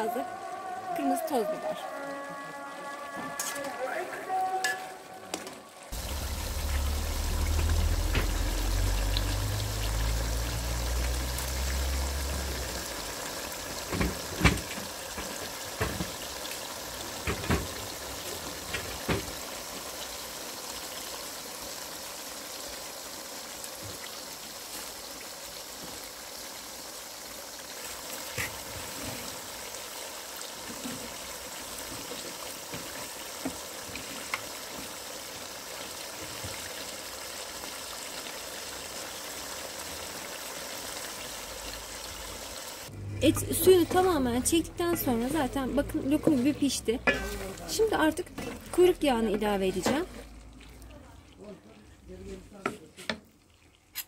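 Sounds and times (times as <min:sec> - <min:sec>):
meat bubbling and hissing in pan: 0:05.9 - 0:42.9, 0:46.0 - 0:54.0
low rumble: 0:06.0 - 0:12.9, 0:42.9 - 0:44.8.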